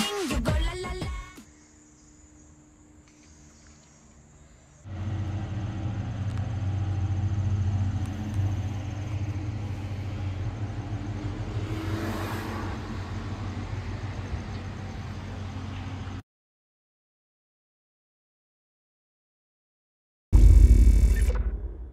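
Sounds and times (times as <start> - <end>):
car engine idling: 4.9 - 12.1, 12.7 - 16.2.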